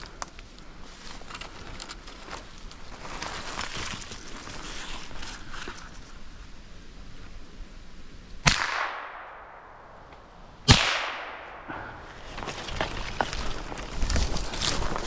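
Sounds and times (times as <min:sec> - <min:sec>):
footsteps in fallen leaves: 0:00.0 - 0:06.3, 0:12.1 - 0:15.0
echoing gunshots: 0:08.4 - 0:12.1.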